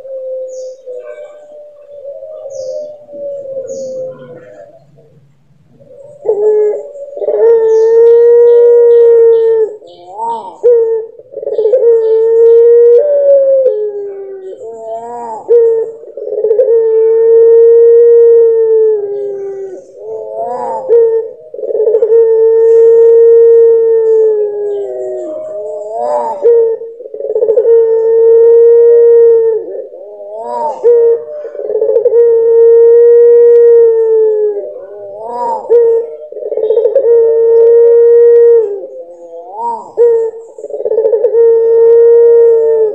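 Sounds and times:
dove cooing: 0:00.0 - 0:42.9.

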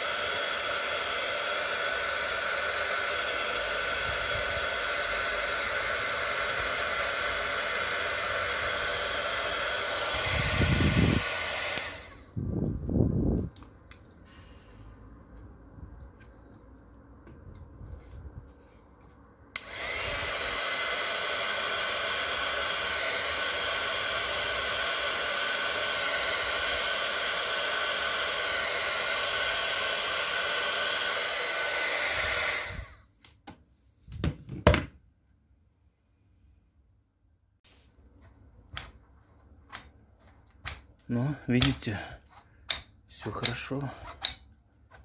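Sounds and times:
hot-air blower whining motor: 0:00.0 - 0:14.7, 0:19.5 - 0:33.1.

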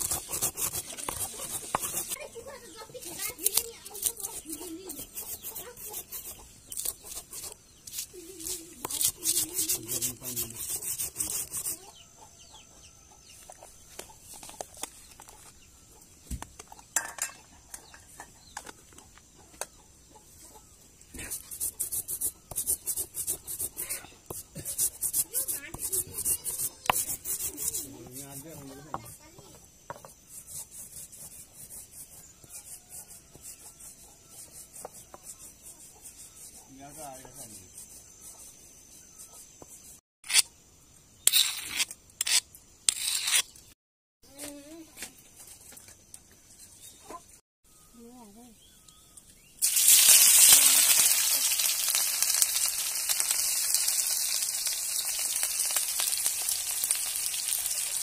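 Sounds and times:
grinding stone scraping on slab: 0:00.0 - 0:02.2, 0:03.3 - 0:11.7, 0:21.2 - 0:29.2, 0:41.2 - 0:43.6.

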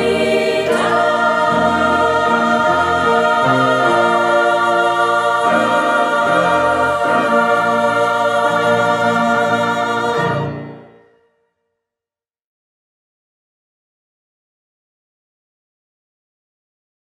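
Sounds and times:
women's choir singing: 0:00.0 - 0:11.0
piano accompaniment: 0:00.0 - 0:11.2.

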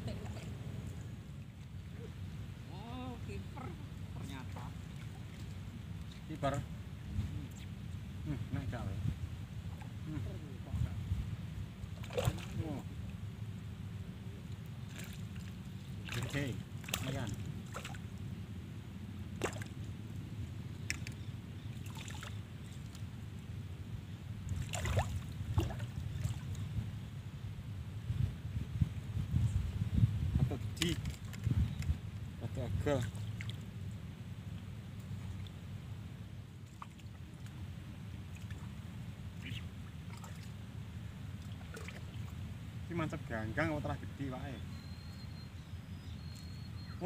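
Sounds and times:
low outdoor rumble: 0:00.0 - 0:47.0
faint light ticks: 0:20.8 - 0:21.2, 0:46.3 - 0:46.6.

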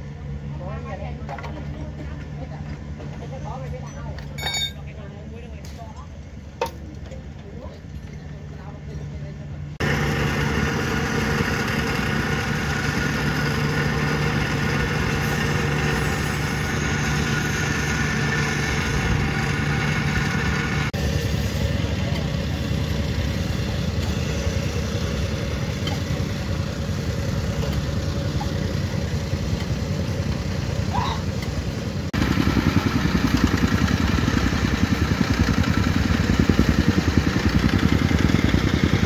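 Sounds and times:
plate compactor engine humming: 0:09.8 - 0:39.0
rough machine noise: 0:09.8 - 0:39.0.

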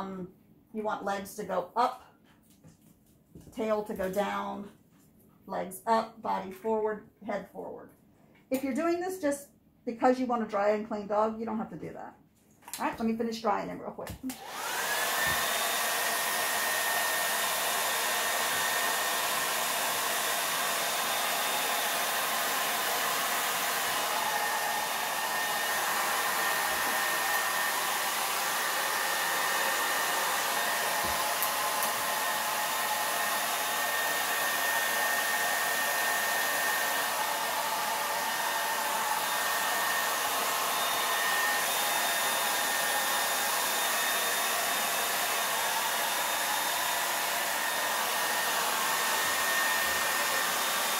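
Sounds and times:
hair dryer blowing: 0:14.2 - 0:50.9.

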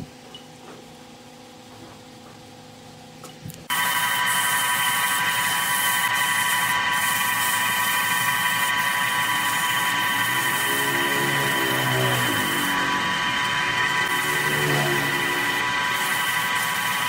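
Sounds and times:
high motor whine: 0:03.7 - 0:17.0
sandpaper hissing on spinning wood: 0:03.7 - 0:17.0.

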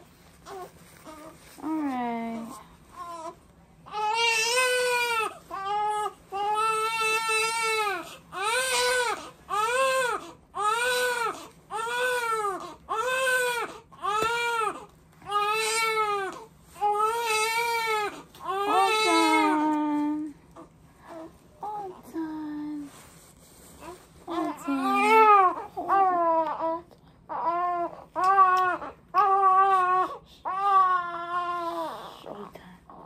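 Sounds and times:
baby crying: 0:03.0 - 0:19.7, 0:24.8 - 0:32.2.

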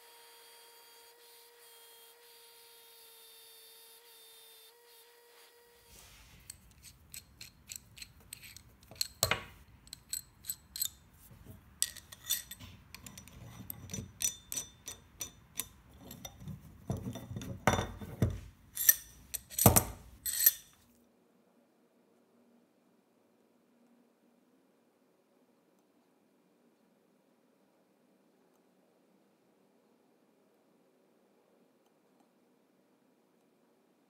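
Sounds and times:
metal handle clinking and clanking: 0:07.1 - 0:11.0, 0:11.8 - 0:20.7.

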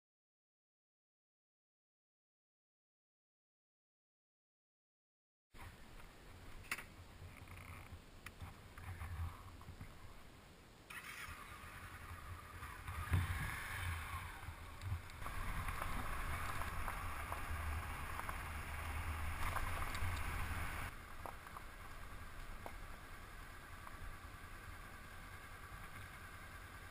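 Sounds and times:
motorcycle engine running: 0:11.0 - 0:26.9
tyres crunching on gravel: 0:11.8 - 0:26.7.

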